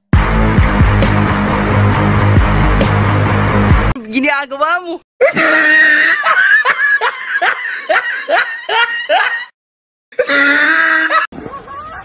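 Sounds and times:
person crying out high-pitched: 0:05.2 - 0:06.2, 0:10.2 - 0:11.3.

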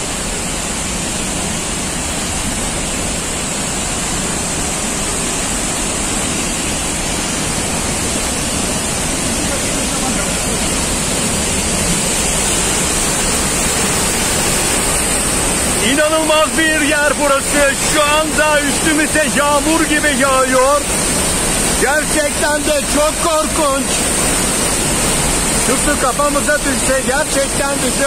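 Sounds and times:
waterfall roaring: 0:00.0 - 0:28.0.

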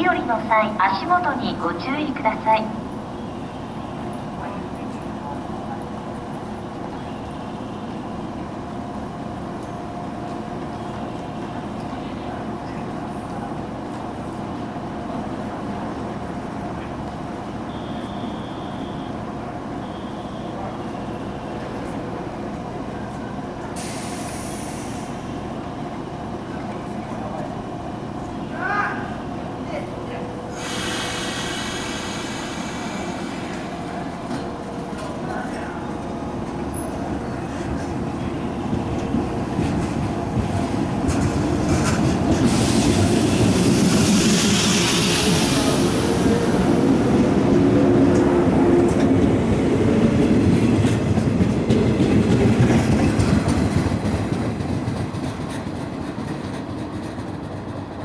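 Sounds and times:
electric train humming: 0:00.0 - 0:58.0
hiss of passing carriages: 0:20.7 - 0:25.8, 0:30.4 - 0:56.4
compressed air hiss: 0:23.8 - 0:25.2, 0:30.5 - 0:33.7
wheels clicking over rail joints: 0:50.2 - 0:58.0.

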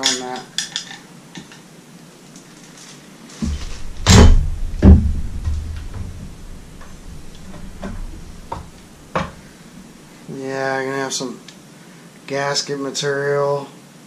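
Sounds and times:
low rumble: 0:03.4 - 0:09.9
hand knocking on motor housing: 0:03.5 - 0:09.4.

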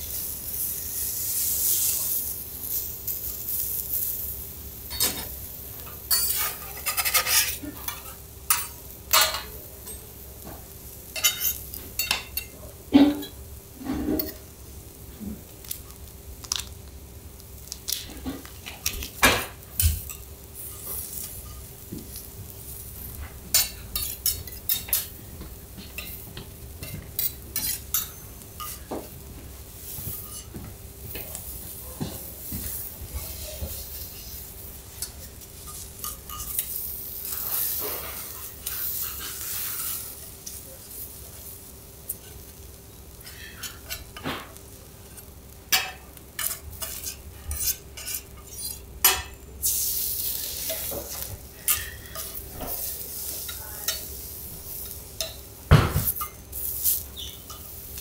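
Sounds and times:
prawns sizzling on griddle: 0:00.0 - 0:58.0
metal spatulas tapping and scraping: 0:05.9 - 0:10.5, 0:11.2 - 0:14.4, 0:23.5 - 0:25.1, 0:25.8 - 0:29.1, 0:30.1 - 0:30.5, 0:35.0 - 0:40.7, 0:43.2 - 0:49.4, 0:50.6 - 0:54.2, 0:54.8 - 0:58.0.

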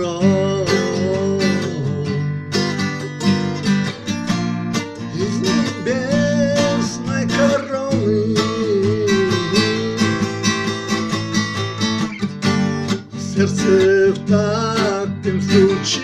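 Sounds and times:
man singing: 0:00.0 - 0:03.1, 0:04.9 - 0:11.4, 0:12.8 - 0:16.0
strummed acoustic guitar: 0:00.0 - 0:16.0.

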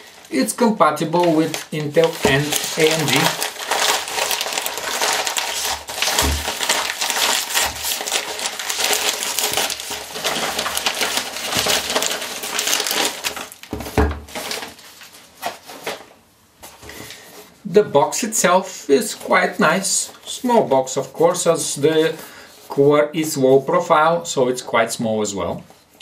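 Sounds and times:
paper mailer tearing and crinkling: 0:00.0 - 0:16.1.

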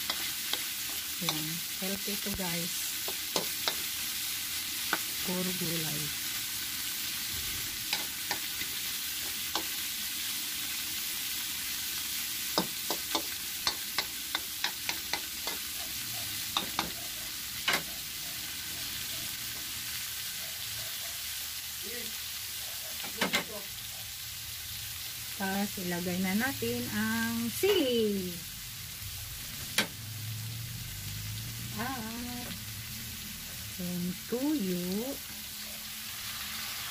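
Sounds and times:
food sizzling in a pan: 0:00.0 - 0:36.9
utensil tapping a pan: 0:03.0 - 0:03.9, 0:12.6 - 0:15.6, 0:16.5 - 0:17.0.

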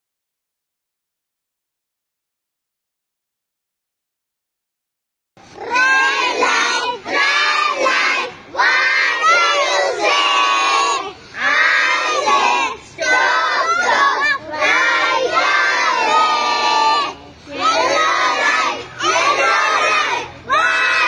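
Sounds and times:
children chanting in unison: 0:05.4 - 0:21.0.

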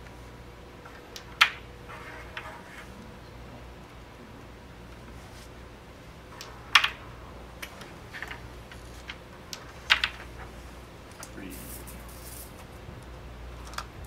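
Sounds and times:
wooden discs clacking together: 0:00.9 - 0:02.8, 0:06.4 - 0:07.0, 0:07.6 - 0:11.3.

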